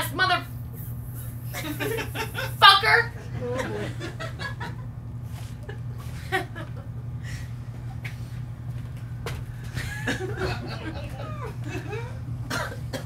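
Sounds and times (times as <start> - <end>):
steady low hum: 0.0 - 13.0
audience stirring and chuckling: 9.7 - 12.2.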